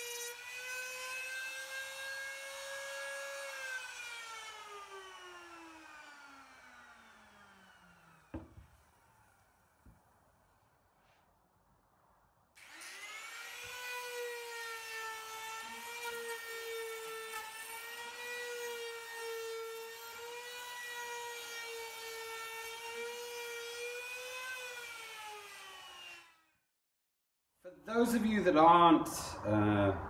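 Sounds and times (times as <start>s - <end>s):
router bit cutting wood: 0.0s - 9.1s, 12.6s - 26.3s
trim router whining: 1.4s - 9.3s, 12.6s - 18.8s.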